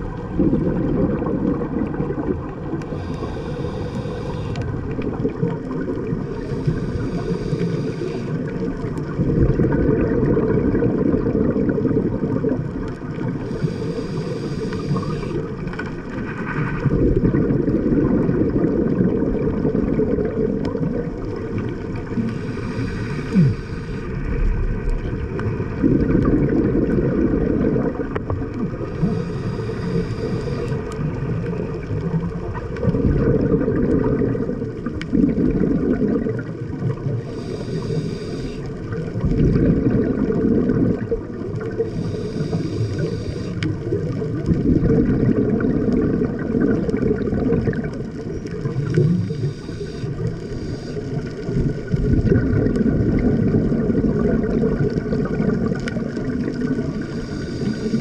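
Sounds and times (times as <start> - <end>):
underwater bubbling rumble: 0.0 - 58.0
regulator inhalation hiss: 2.9 - 4.8, 6.3 - 8.5, 13.4 - 15.4, 22.2 - 24.2, 29.0 - 30.9, 37.2 - 38.7, 41.8 - 43.7, 49.0 - 51.2, 57.0 - 58.0.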